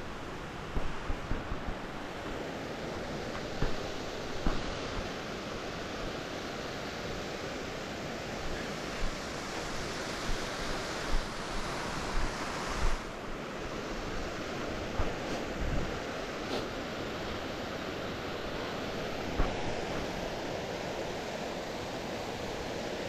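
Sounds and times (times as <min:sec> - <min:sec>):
waterfall rushing: 0:02.0 - 0:14.4
wind thumps on microphone: 0:03.3 - 0:05.2, 0:08.4 - 0:13.1, 0:14.8 - 0:16.8, 0:19.2 - 0:20.2.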